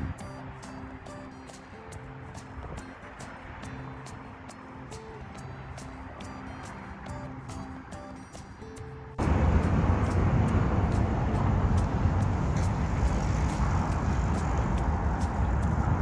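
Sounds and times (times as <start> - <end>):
faint background music: 0.0 - 16.0
traffic rumble: 0.0 - 16.0
wind on the microphone: 9.2 - 16.0.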